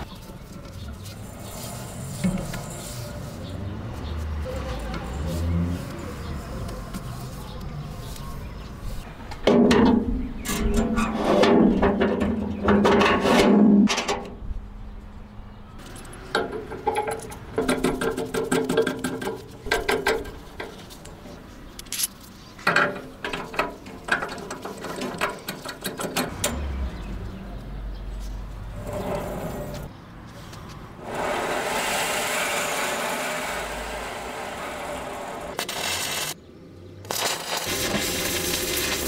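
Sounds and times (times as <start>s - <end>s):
metal clicks and knocks: 21.8s - 26.6s.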